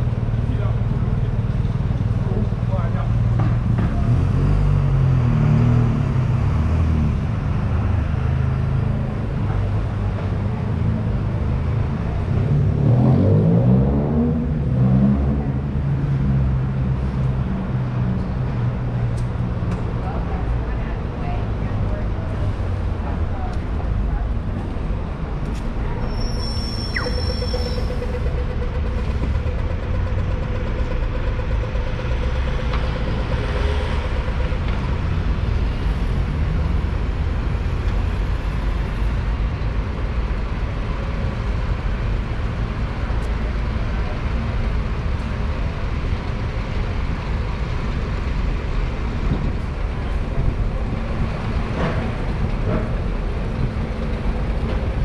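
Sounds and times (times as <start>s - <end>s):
bus engine rumble: 0.0s - 55.0s
high squeal: 26.0s - 28.7s.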